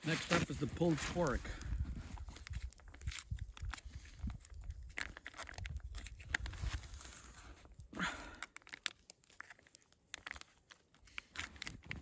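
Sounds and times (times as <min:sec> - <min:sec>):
plastic pouch tearing and crinkling: 0:02.2 - 0:07.6, 0:08.4 - 0:12.0.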